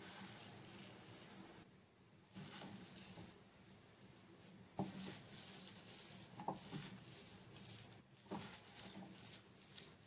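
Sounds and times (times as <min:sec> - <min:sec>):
hand squishing soaked bread: 0:00.0 - 0:01.7, 0:02.3 - 0:10.0.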